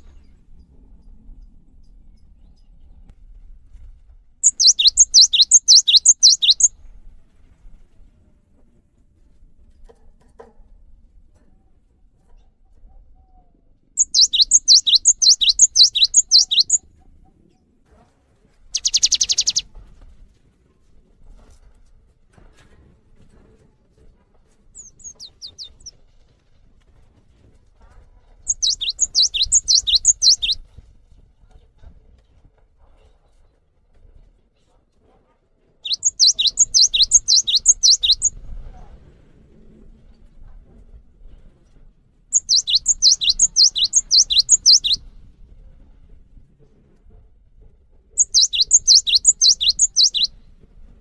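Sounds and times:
bird whistling high notes: 4.4s - 6.7s, 14.0s - 16.8s, 18.8s - 19.6s, 28.5s - 30.6s, 35.9s - 38.3s, 42.4s - 45.0s, 48.2s - 50.3s.

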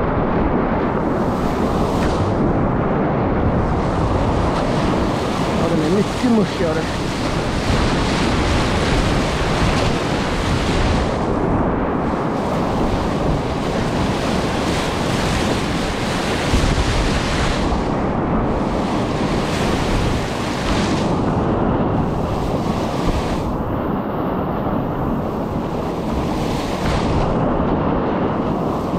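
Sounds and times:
wind buffeting microphone: 0.0s - 28.9s
river rapid rushing: 3.4s - 11.4s.

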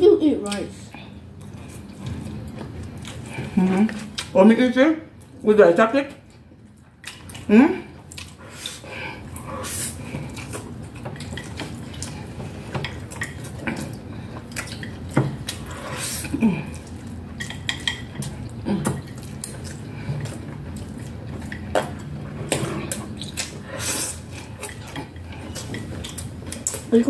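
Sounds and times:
chewing: 0.4s - 4.4s, 6.2s - 27.0s
chopsticks clicking on plates: 16.7s - 23.6s.

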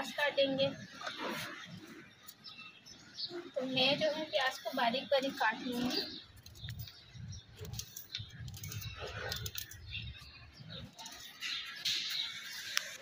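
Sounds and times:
pigeons cooing: 3.2s - 13.0s.

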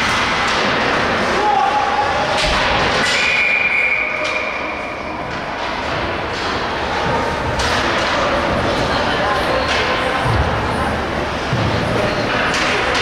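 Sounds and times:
referee's whistle blast: 3.1s - 4.6s.

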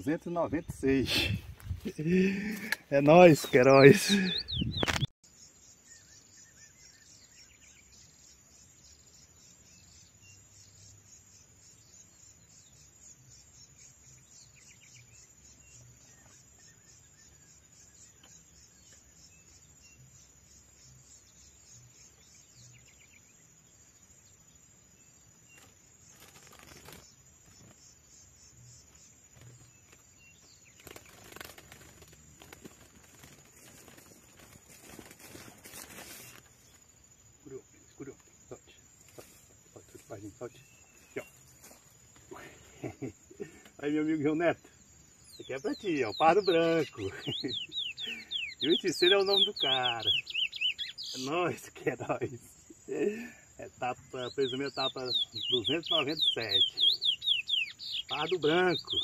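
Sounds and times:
faint bird chirps: 0.0s - 59.0s
bird wings fluttering: 25.5s - 27.8s, 29.3s - 36.8s.

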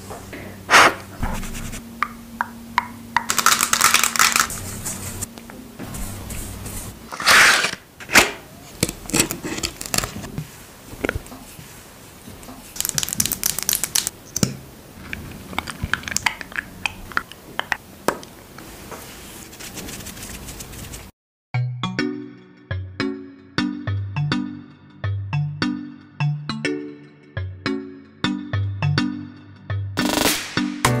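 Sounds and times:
rustling and crinkling: 8.6s - 14.1s.

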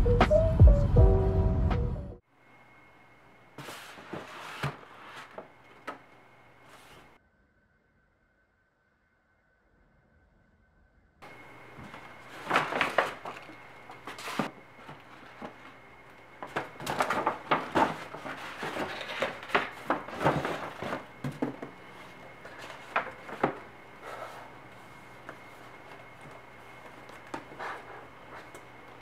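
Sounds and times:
paper bag rustling: 3.6s - 7.2s, 11.2s - 29.0s.

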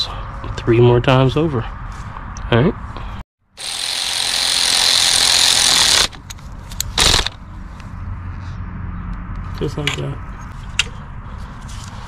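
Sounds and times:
cordless power tool running: 3.6s - 6.2s, 7.0s - 7.4s.

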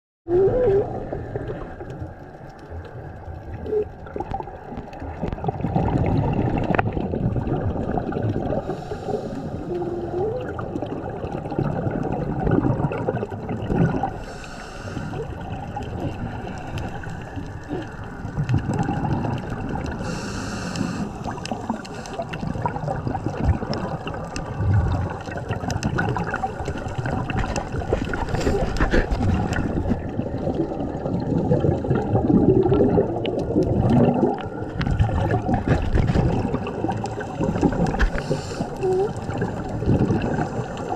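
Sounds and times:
bubbles gurgling underwater: 0.3s - 40.9s
diver's regulator breathing: 8.6s - 10.4s, 14.1s - 15.4s, 20.0s - 22.5s, 26.4s - 30.2s, 37.2s - 40.9s.

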